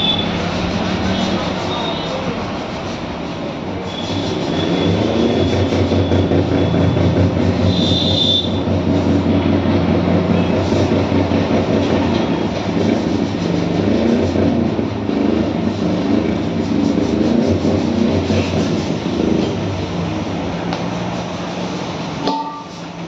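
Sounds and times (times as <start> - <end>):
high squeal: 0.0 - 2.5, 3.7 - 8.7
machine drone: 0.0 - 22.3.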